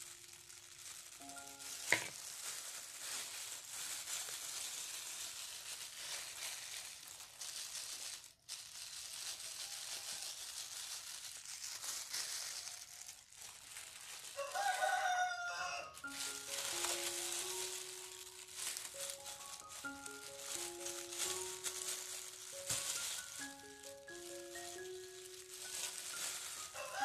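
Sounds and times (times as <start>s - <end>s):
plastic gloves rustling: 0.0s - 27.0s
rooster crowing: 14.4s - 16.1s, 26.6s - 27.0s.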